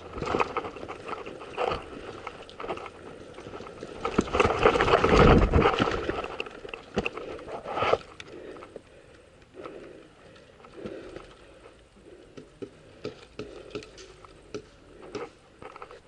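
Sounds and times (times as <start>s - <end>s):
clothing and gear rustling: 0.0s - 8.2s
faint breathing: 7.0s - 16.0s.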